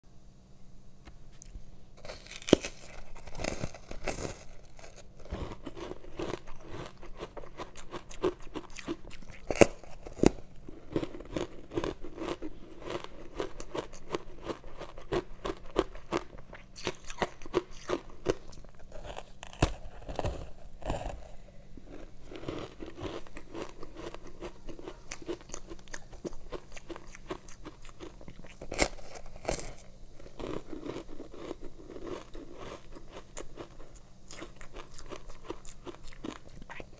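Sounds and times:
crunchy ice chewing: 1.4 - 36.9.

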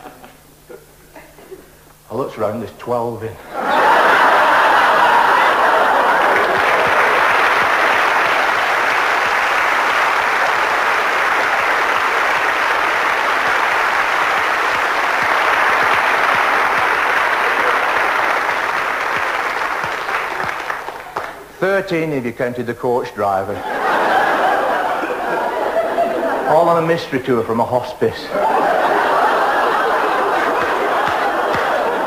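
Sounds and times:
audience applauding: 3.5 - 21.5, 28.3 - 32.0.

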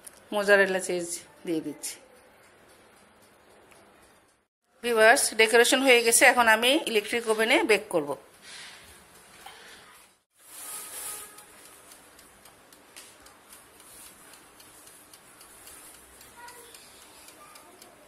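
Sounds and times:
oven timer ticking and clicking: 0.1 - 4.5, 11.2 - 18.0.

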